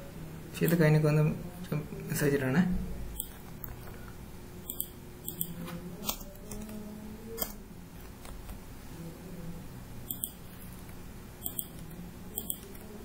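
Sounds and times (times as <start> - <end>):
faint steady hum: 0.0 - 13.0
keyboard and mouse clicks: 4.7 - 6.8, 10.1 - 12.9.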